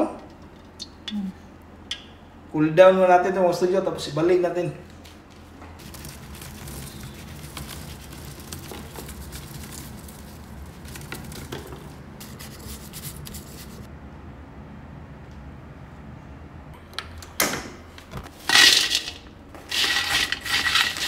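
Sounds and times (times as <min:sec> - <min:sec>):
low steady hum: 0:00.0 - 0:21.0
paper towels rustling: 0:05.1 - 0:13.9
hot pork fat crackling: 0:05.8 - 0:13.2.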